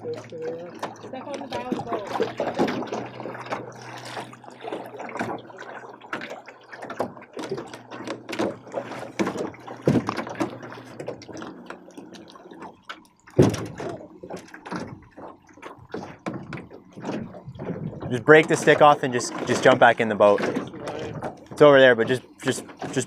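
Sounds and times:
splashy knocks: 0.0 - 23.0
waves lapping against boat: 0.0 - 23.0
loud thump on boat: 6.9 - 11.2, 13.3 - 15.0.

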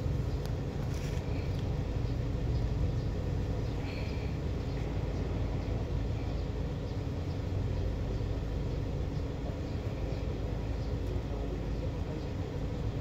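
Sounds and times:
low vehicle rumble: 0.0 - 13.0.

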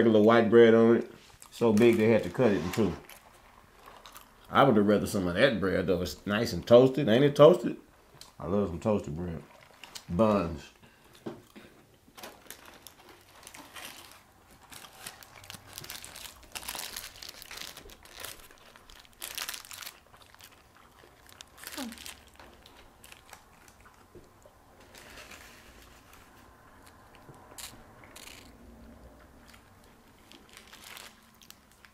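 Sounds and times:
paper wrappers crinkling: 12.1 - 23.9, 24.8 - 28.6, 29.5 - 31.9
crunchy bites and chewing: 12.2 - 25.1.

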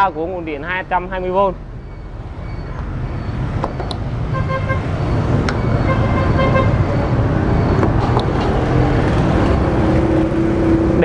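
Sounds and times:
road traffic rumbling: 0.0 - 11.0
vehicle horn beeping: 4.3 - 4.9, 5.8 - 6.9.

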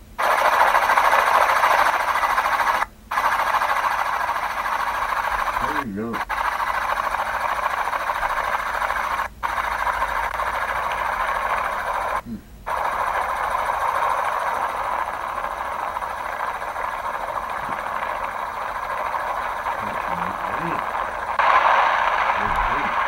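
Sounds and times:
helicopter cabin drone: 0.0 - 23.0.

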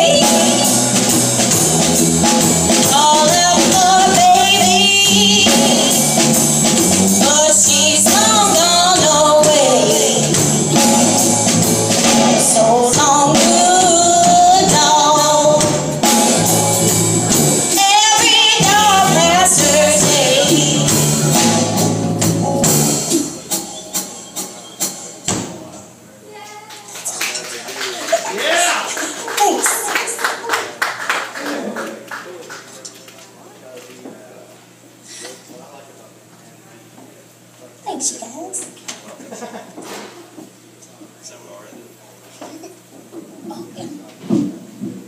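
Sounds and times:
woman singing: 0.0 - 0.9, 2.8 - 6.2, 7.2 - 10.4, 12.2 - 15.9, 17.7 - 21.0
electric guitar: 0.0 - 24.1
drum kit with cymbals: 0.0 - 25.8.

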